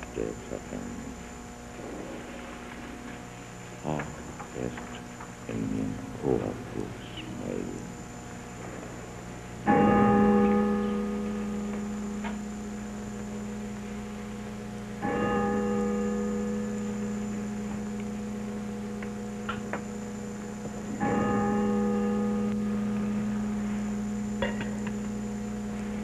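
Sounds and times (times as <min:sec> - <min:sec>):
steady hum: 0:00.0 - 0:26.0
church bell ringing: 0:09.6 - 0:26.0.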